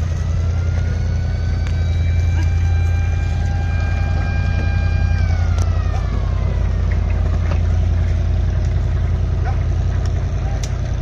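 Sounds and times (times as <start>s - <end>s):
high tone sliding down: 0.0s - 7.7s
engine droning: 0.0s - 11.0s.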